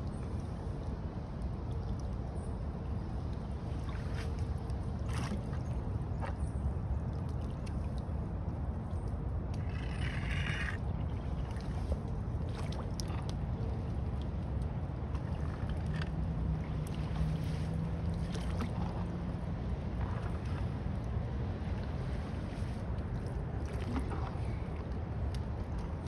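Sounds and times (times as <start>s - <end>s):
small splashes from stick: 8.9s - 26.0s.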